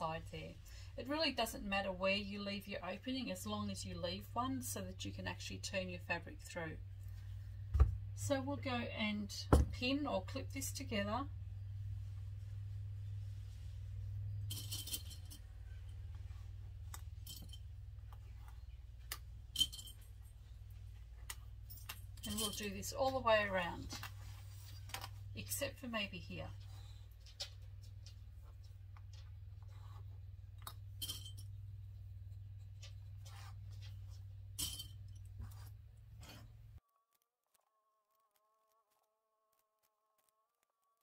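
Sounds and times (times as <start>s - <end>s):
low hum: 0.0s - 36.8s
sewing pins clicking and clinking: 21.2s - 23.2s.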